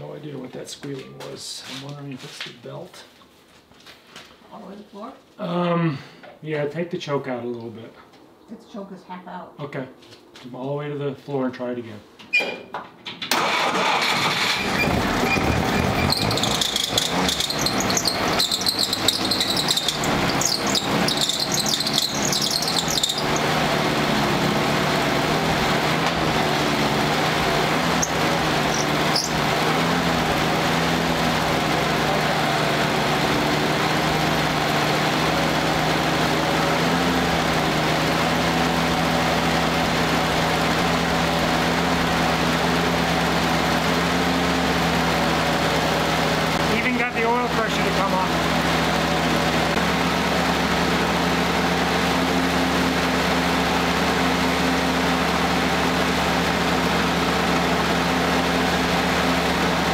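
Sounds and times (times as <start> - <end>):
engine running unevenly: 13.4 - 59.9
high squeal: 14.4 - 23.7, 27.8 - 30.0.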